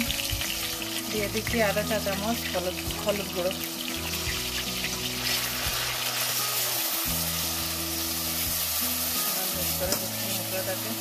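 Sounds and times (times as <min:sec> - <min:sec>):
paste sizzling in hot oil: 0:00.0 - 0:11.0
soft background music: 0:00.0 - 0:11.0.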